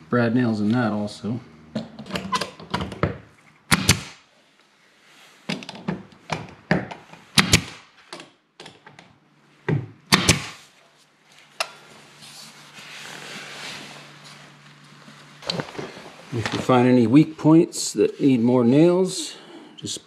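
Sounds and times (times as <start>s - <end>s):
brad nailer firing: 3.7s - 4.2s, 7.3s - 7.9s, 10.1s - 10.6s.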